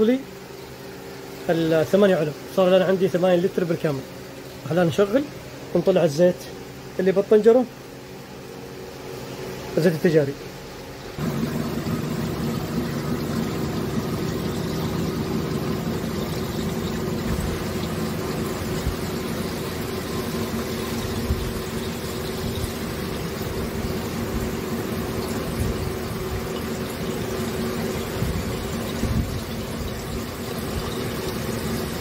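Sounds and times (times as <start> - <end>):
engine idling: 11.2 - 32.0.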